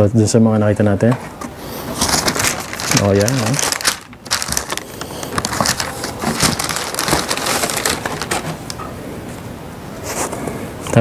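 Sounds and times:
tissue paper rustling: 1.7s - 8.8s.

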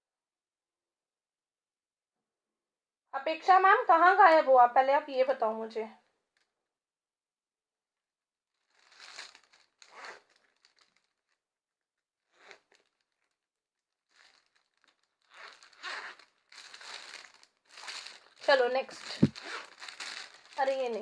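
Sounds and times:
packaging crinkling and rustling: 8.6s - 11.4s, 12.5s - 13.4s, 14.0s - 21.0s.

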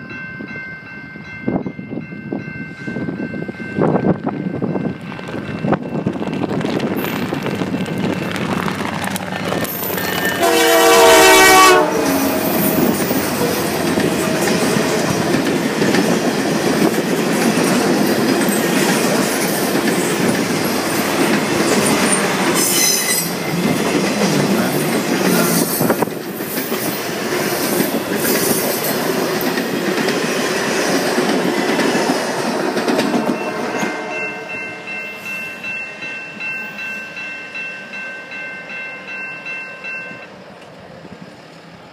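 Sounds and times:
train cars rumbling: 0.0s - 41.9s
train horn blast: 10.3s - 15.1s, 33.2s - 34.8s
wheels clicking over rail joints: 12.5s - 33.4s.

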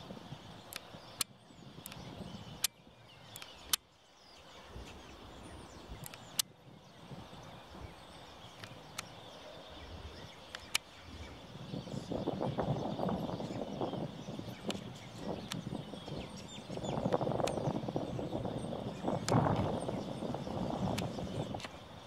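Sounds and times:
sharp clicks: 0.7s - 3.9s, 6.0s - 6.5s, 8.5s - 9.2s, 10.5s - 11.0s, 15.4s - 15.7s, 19.2s - 19.7s, 20.9s - 21.8s.

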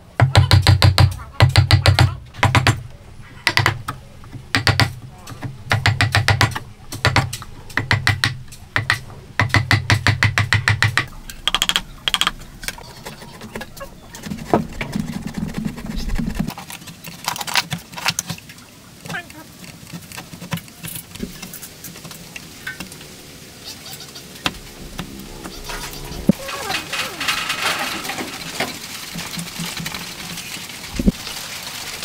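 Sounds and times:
chisel tapping into wood: 5.7s - 12.3s.

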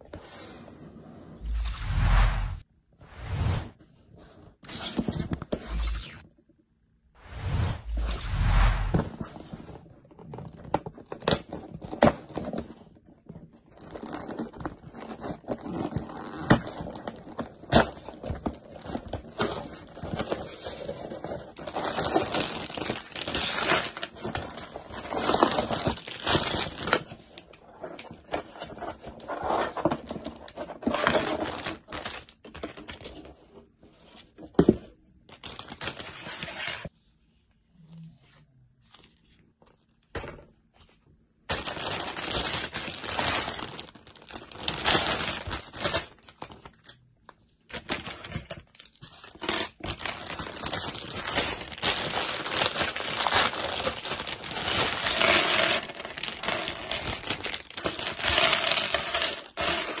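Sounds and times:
plastic bags crinkling: 41.5s - 45.9s, 48.7s - 60.0s.

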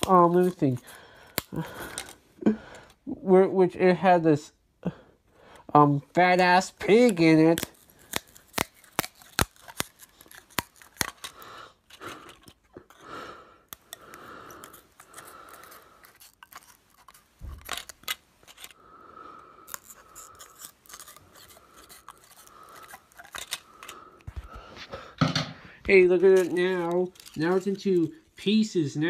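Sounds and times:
scissors cutting plastic disc: 0.0s - 2.2s, 6.2s - 13.1s, 13.7s - 18.8s, 19.6s - 24.6s, 26.4s - 28.0s.

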